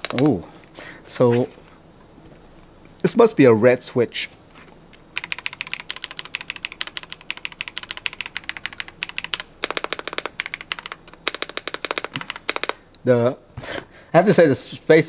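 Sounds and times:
mechanical keyboard typing: 0:00.0 - 0:00.4, 0:05.2 - 0:12.8.

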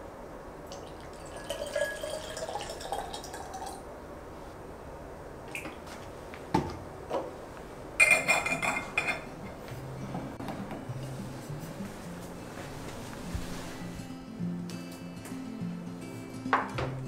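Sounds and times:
water pouring into a bottle: 0:00.7 - 0:03.8
metal cap clinking and scraping: 0:08.0 - 0:09.3.

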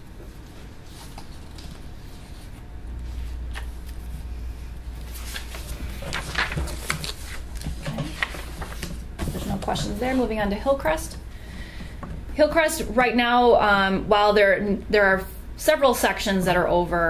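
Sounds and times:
steady low hum: 0:00.0 - 0:17.0
papers rustling and knocking: 0:05.0 - 0:10.3.

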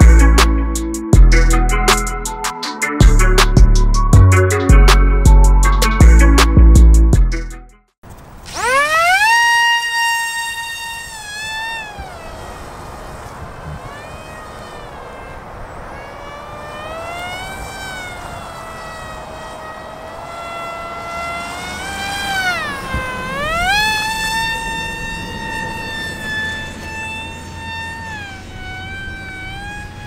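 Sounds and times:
model plane electric motor whining: 0:08.1 - 0:30.0
wind rumbling on microphone: 0:10.3 - 0:30.0.

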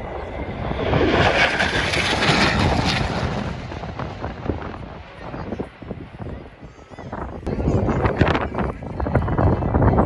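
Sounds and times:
aircraft flying past: 0:00.0 - 0:06.7.

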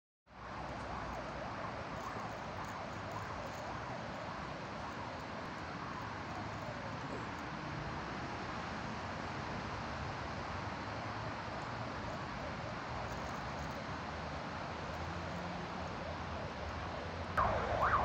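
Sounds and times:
street ambience hiss and rumble: 0:00.3 - 0:18.0
faint rising and falling pitches: 0:17.4 - 0:18.0.

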